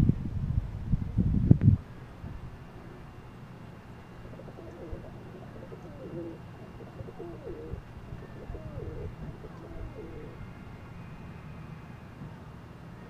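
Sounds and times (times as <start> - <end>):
pigeons cooing: 4.1 - 10.5.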